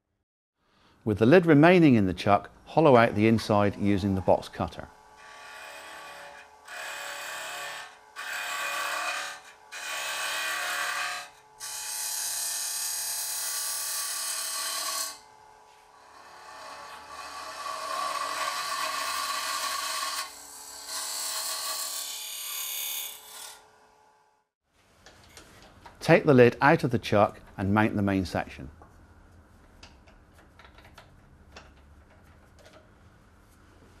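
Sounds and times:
lathe humming: 0:03.7 - 0:11.8, 0:16.0 - 0:23.5
rasping wood cutting: 0:05.1 - 0:15.3, 0:15.9 - 0:23.6.

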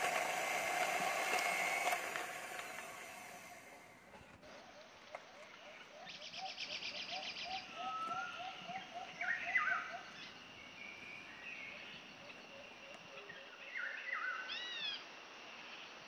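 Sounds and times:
birds chirping and calling: 0:04.6 - 0:13.0.

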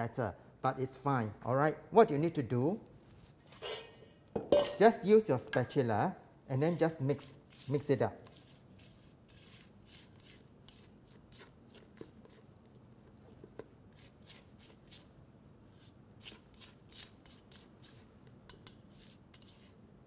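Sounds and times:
spatula scraping metal bowl: 0:06.6 - 0:12.4, 0:18.6 - 0:19.7.

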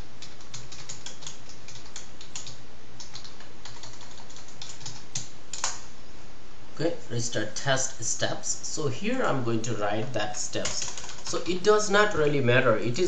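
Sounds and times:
computer keyboard typing: 0:00.0 - 0:05.8, 0:10.6 - 0:11.8.

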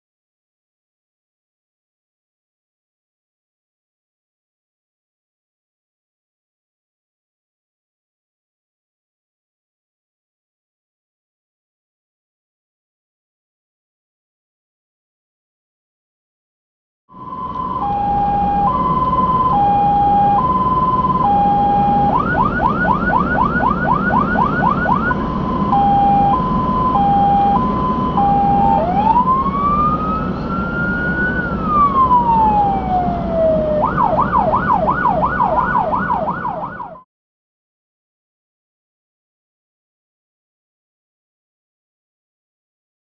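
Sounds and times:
road noise: 0:17.1 - 0:37.0
fire engine siren: 0:17.1 - 0:37.1
truck engine: 0:17.2 - 0:37.0.

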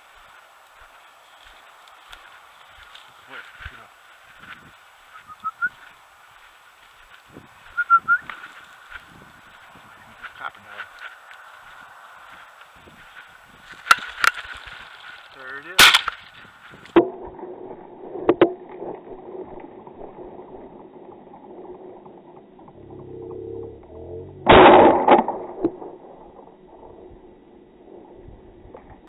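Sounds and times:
shotgun shots: 0:15.8 - 0:16.2, 0:24.5 - 0:25.9.

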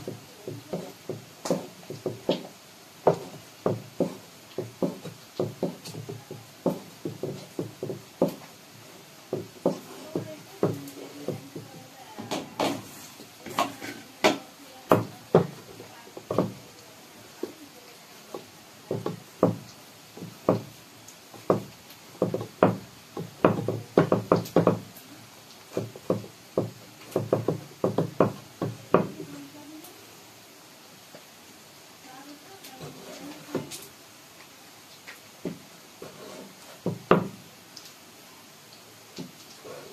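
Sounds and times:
dough knocking on wooden board: 0:00.0 - 0:08.4, 0:13.6 - 0:15.6, 0:16.2 - 0:16.6, 0:18.3 - 0:19.6, 0:20.2 - 0:20.7, 0:21.4 - 0:24.8, 0:25.8 - 0:29.2, 0:36.8 - 0:37.4.

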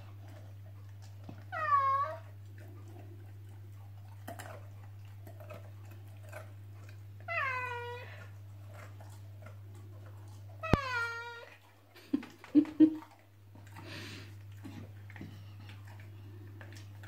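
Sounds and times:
low steady hum: 0:00.0 - 0:17.0
dog whining: 0:01.2 - 0:02.9, 0:07.2 - 0:08.8, 0:10.5 - 0:11.8.

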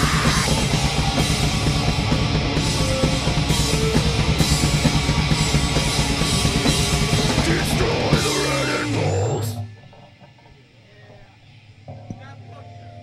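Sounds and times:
drum kit pounding rapidly: 0:00.0 - 0:09.6
bass guitar: 0:00.0 - 0:10.5
distorted electric guitar: 0:00.0 - 0:13.0.

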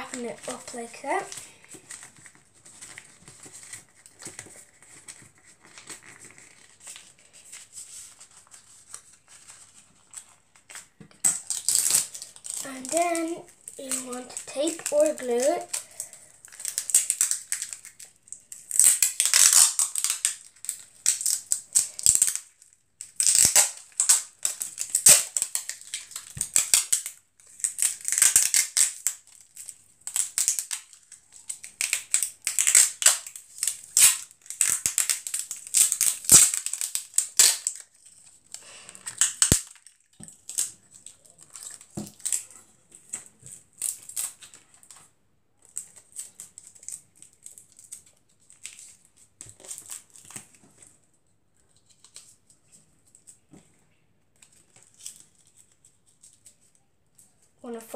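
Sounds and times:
paper rustling: 0:00.0 - 0:11.0.

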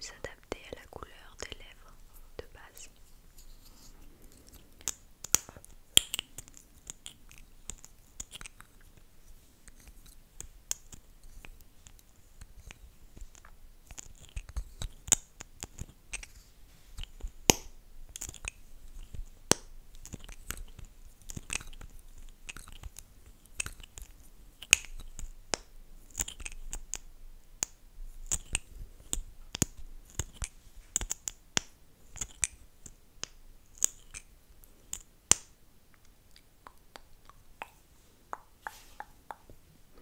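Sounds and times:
lips smacking and clicking: 0:04.3 - 0:09.0, 0:20.0 - 0:25.3, 0:26.1 - 0:27.0, 0:33.8 - 0:34.3, 0:35.9 - 0:40.0.

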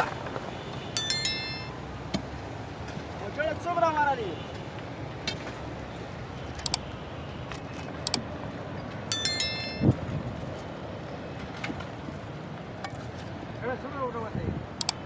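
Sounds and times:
short metallic ringing: 0:01.0 - 0:01.8, 0:09.1 - 0:09.9.

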